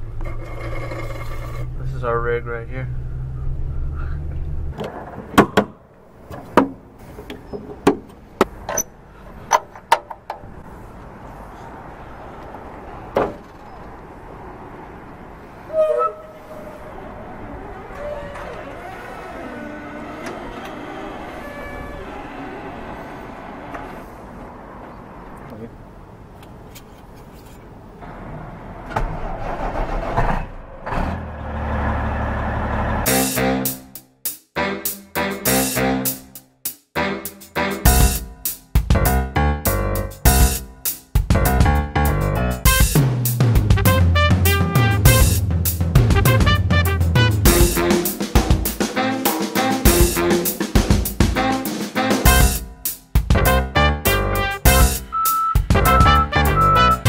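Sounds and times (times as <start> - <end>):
low engine rumble: 0.0 - 5.4, 6.0 - 33.1, 41.4 - 48.1.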